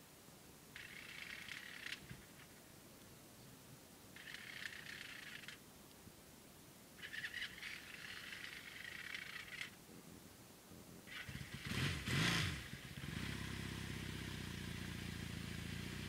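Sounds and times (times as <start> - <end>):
motorcycle engine revving and idling: 11.1 - 16.0.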